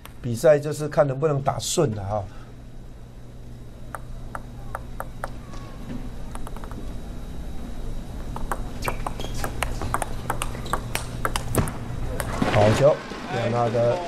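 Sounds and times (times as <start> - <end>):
table tennis rally clicks: 3.9 - 5.4, 6.3 - 6.9, 8.3 - 12.6
table tennis ball bouncing: 3.9 - 5.6, 6.3 - 6.9, 8.3 - 12.5.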